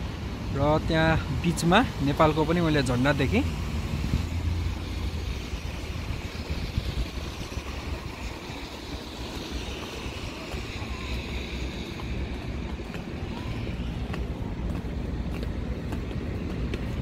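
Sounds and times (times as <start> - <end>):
wind buffeting microphone: 0.0 - 17.0
hiss: 3.3 - 12.6.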